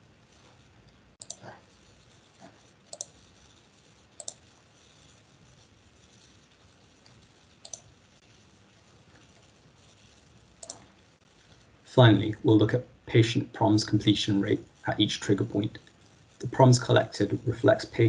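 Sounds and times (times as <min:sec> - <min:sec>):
faint room hiss: 0:00.0 - 0:18.0
computer mouse clicks: 0:00.3 - 0:05.2, 0:06.0 - 0:08.0, 0:09.2 - 0:11.6.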